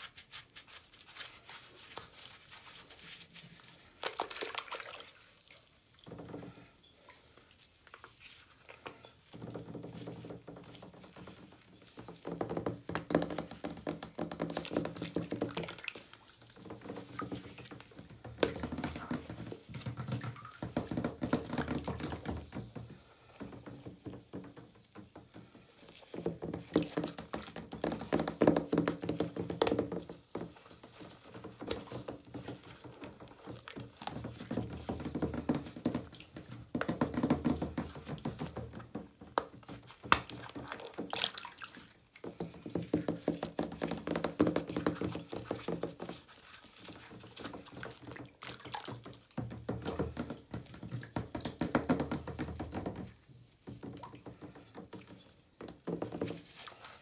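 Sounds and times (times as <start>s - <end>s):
wet squelching and sloshing: 0.5s - 6.3s, 14.6s - 21.0s, 39.6s - 44.0s, 44.8s - 49.6s.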